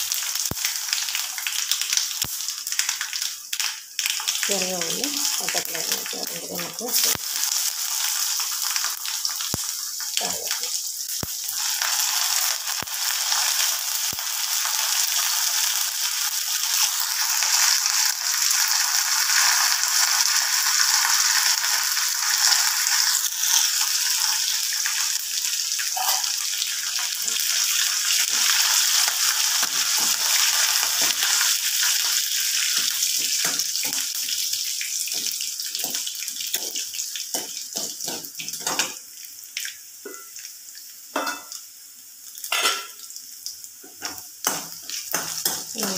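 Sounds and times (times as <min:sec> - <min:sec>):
food sizzling in hot oil: 0:00.0 - 0:45.9
spoon scraping metal pan: 0:23.3 - 0:24.5.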